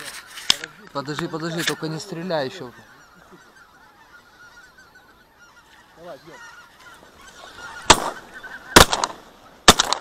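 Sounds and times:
geese honking: 0.0s - 9.7s
shotgun shots: 7.9s - 8.2s, 8.8s - 10.0s.

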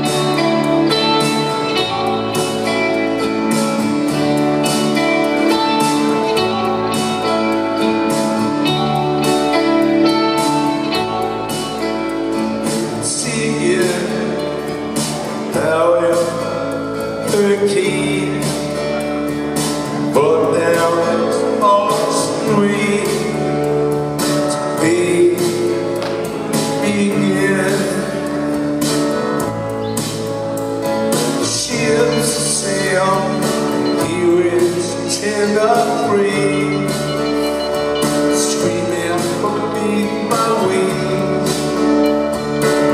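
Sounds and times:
bass line: 0.0s - 42.9s
electric guitars: 0.0s - 42.9s
man singing: 12.5s - 29.0s, 31.0s - 42.9s.

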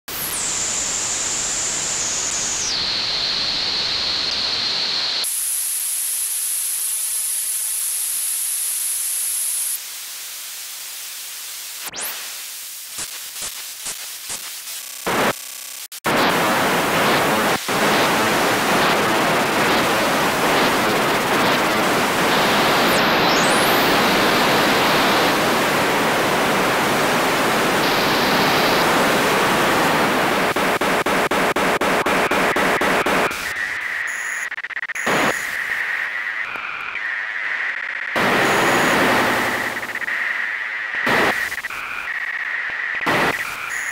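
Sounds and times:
sharp clicks and chopped bursts: 12.9s - 16.1s, 30.4s - 35.8s.

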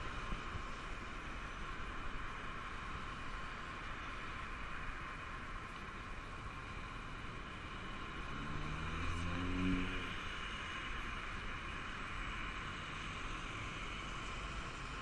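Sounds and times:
road traffic hiss: 0.0s - 15.0s
vehicle engine passing by: 8.0s - 10.4s.

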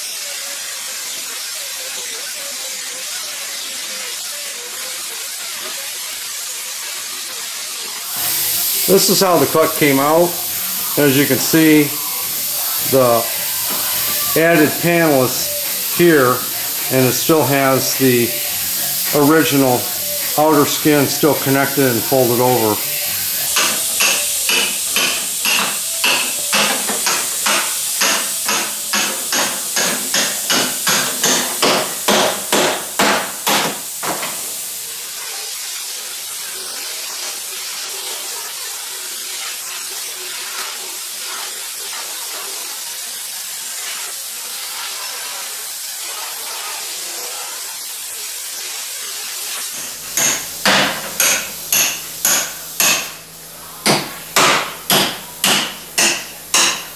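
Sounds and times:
angle grinder grinding hiss: 0.0s - 56.9s
hammer striking steel chisel: 23.6s - 34.3s, 50.2s - 53.2s, 53.8s - 56.9s.

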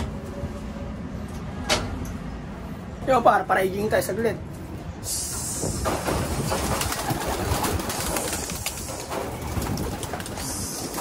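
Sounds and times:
wind on microphone: 5.4s - 11.0s
pigeons cooing: 6.4s - 11.0s.

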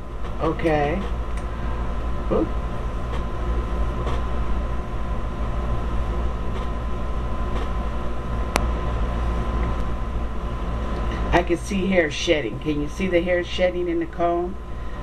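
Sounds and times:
steady low rumble: 0.0s - 15.0s
thin steady whine: 0.0s - 15.0s.

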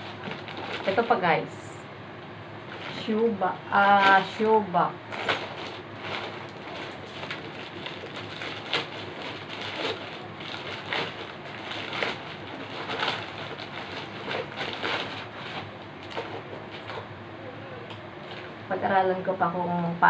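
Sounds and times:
sharp plastic crackles: 0.0s - 1.3s, 2.6s - 17.1s
plastic packaging crinkling: 0.0s - 1.5s, 2.6s - 17.1s.

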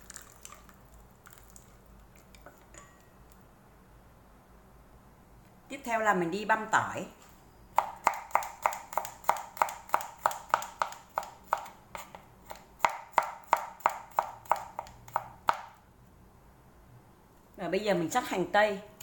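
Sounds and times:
knife chopping on plastic board: 7.8s - 15.7s.

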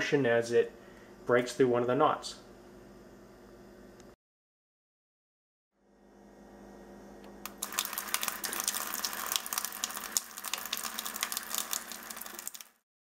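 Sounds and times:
water streaming into bucket: 7.5s - 12.8s.

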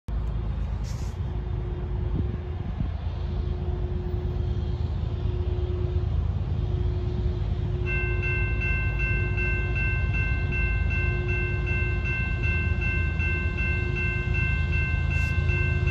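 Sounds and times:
low rumble: 0.1s - 7.9s
level-crossing bell ringing: 7.9s - 15.9s.

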